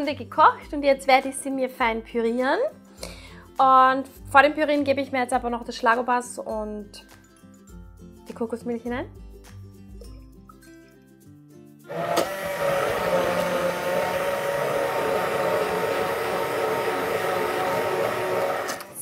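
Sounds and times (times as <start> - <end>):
hand blender running in pot: 11.9 - 19.0.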